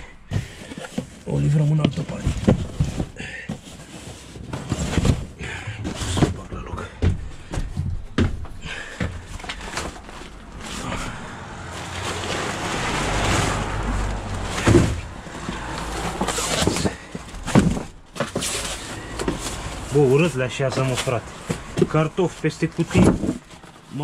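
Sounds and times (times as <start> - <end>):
boxes being shoved and lifted: 0.0 - 24.0
knocks and thuds: 1.8 - 3.8, 4.4 - 10.3, 12.1 - 19.4.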